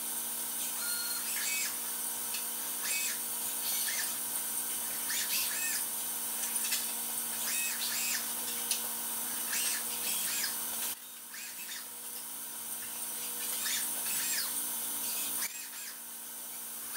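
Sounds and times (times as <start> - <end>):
machine hum and hiss: 0.0 - 16.9
robot servo motors whining: 0.6 - 1.8, 2.7 - 8.7, 9.3 - 11.9, 12.8 - 16.0.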